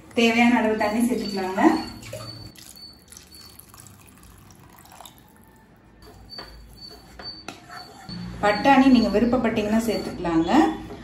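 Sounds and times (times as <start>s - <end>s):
water trickling into liquid: 1.9s - 5.6s.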